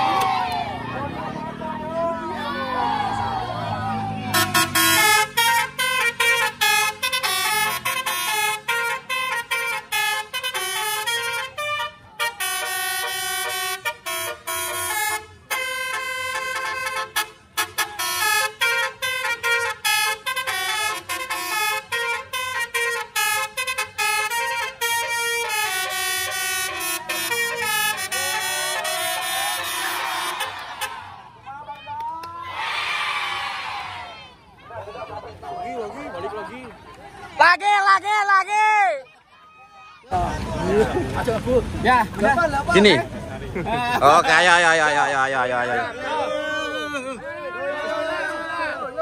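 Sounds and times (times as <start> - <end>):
musical air horn melody: 4.3 - 31.0.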